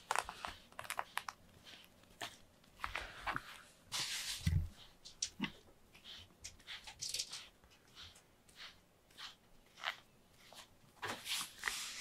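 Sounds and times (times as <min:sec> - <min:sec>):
cats sniffing: 0:04.5 - 0:10.7.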